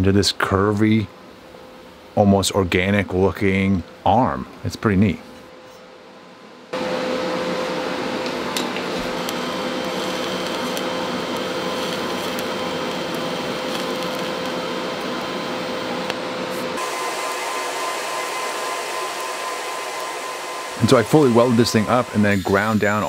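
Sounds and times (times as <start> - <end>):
welding arc hissing: 8.9 - 23.0.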